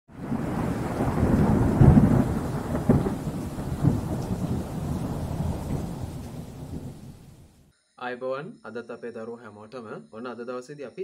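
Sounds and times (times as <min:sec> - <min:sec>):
rain: 0:00.1 - 0:07.6
rolling thunder: 0:00.1 - 0:07.6.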